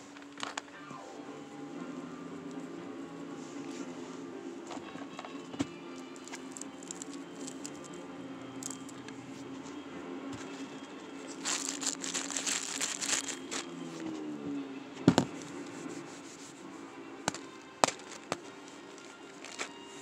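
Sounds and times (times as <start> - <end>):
crinkly plastic wrapper rubbed: 6.2 - 8.0, 8.6 - 9.7, 11.2 - 14.2, 15.3 - 20.0.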